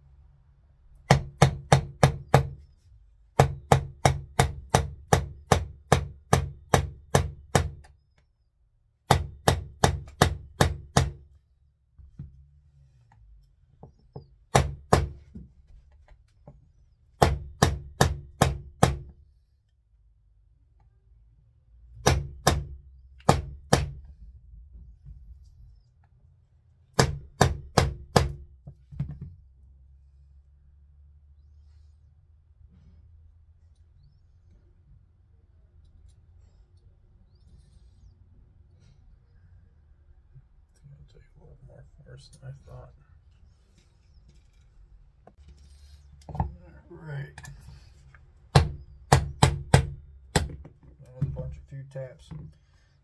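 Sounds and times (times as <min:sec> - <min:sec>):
hammer tapping a punch: 0:03.4 - 0:07.9, 0:48.5 - 0:50.7.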